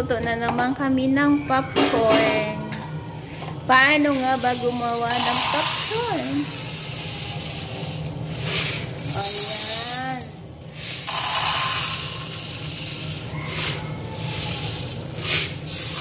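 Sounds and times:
short scrapes or rattles: 8.3 - 10.0.

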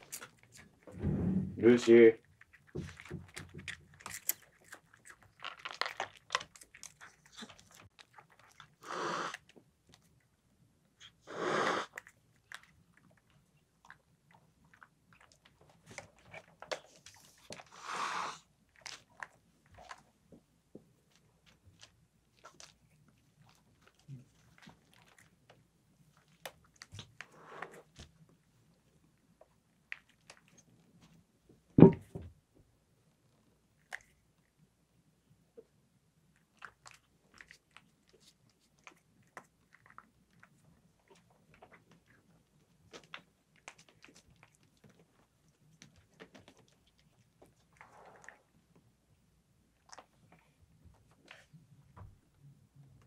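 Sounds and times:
cat chewing dry kibble: 0.0 - 0.9, 2.2 - 31.7, 36.2 - 52.3
small clicks and crunches: 2.4 - 8.7, 36.5 - 48.4
cat hissing: 8.8 - 9.4, 11.2 - 12.0, 17.7 - 18.4.

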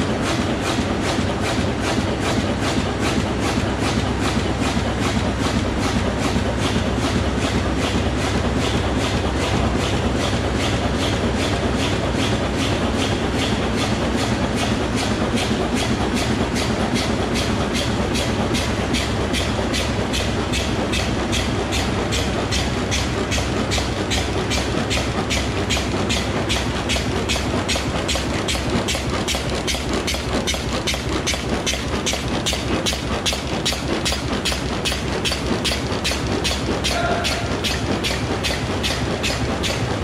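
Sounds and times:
regular mechanical clacking: 0.0 - 40.0
packaging machine running: 19.2 - 40.0.

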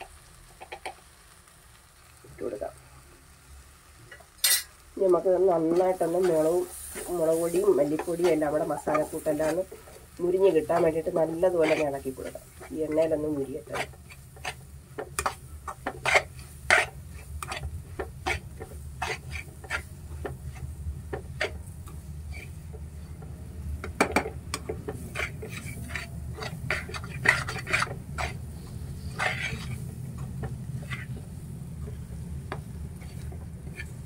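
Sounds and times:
masala frying in oil: 0.0 - 34.0
steady low hum: 5.0 - 34.0
spoon scraping metal pan: 5.6 - 22.6, 23.9 - 34.0.

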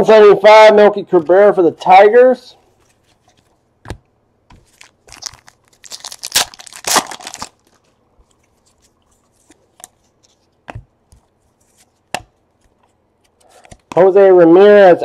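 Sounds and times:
wrapper tearing and crinkling: 4.6 - 9.6.

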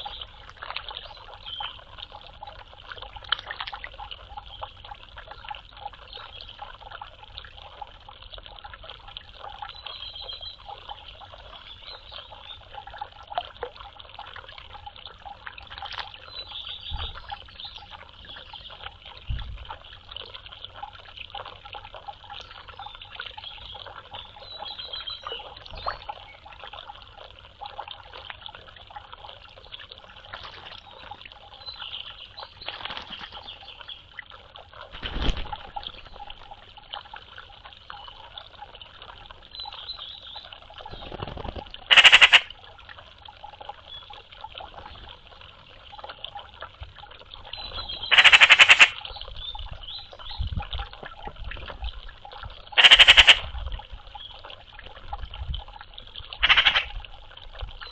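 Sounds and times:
magpies rattling chatter calls: 41.9 - 42.5, 47.8 - 49.0, 52.8 - 53.5, 56.4 - 56.9.

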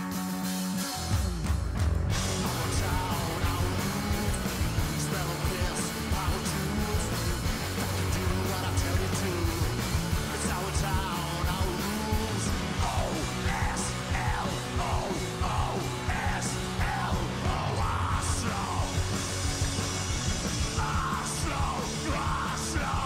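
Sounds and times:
punk rock band playing: 0.0 - 23.0
shouted vocals: 10.4 - 19.1, 20.7 - 23.0.

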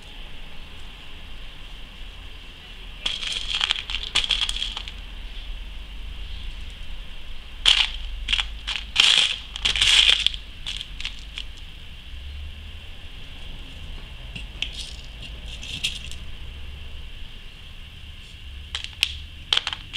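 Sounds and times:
beads rattling in plastic box: 3.0 - 5.0, 7.6 - 11.6, 18.7 - 19.9.

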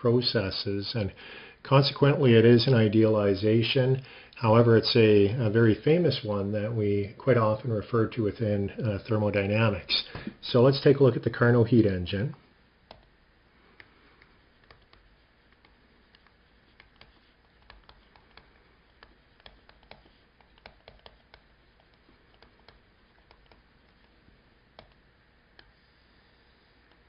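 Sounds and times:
stylus tapping on tablet screen: 14.6 - 24.1.

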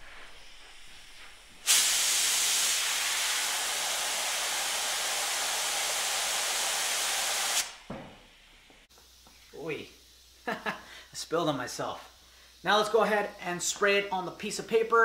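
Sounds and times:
spray gun hissing: 0.0 - 7.9.

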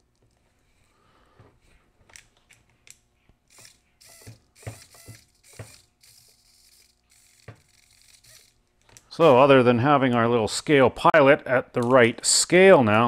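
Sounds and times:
micro servo whirring: 3.5 - 8.6.

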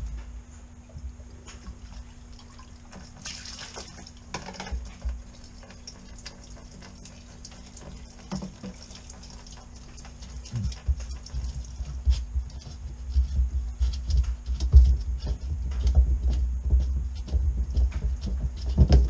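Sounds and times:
fuel splashing and dripping: 1.2 - 12.5.

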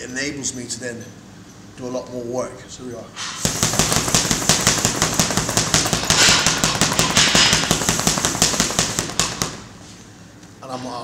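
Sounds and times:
punches on heavy bag: 3.4 - 9.7.

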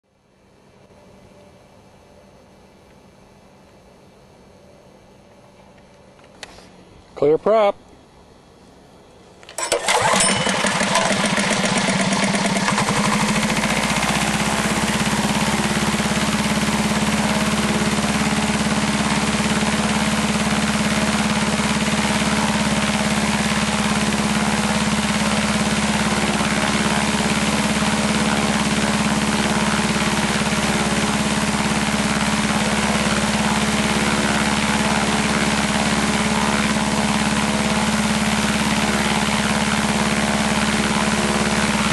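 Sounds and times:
engine driving propeller: 9.5 - 41.9.

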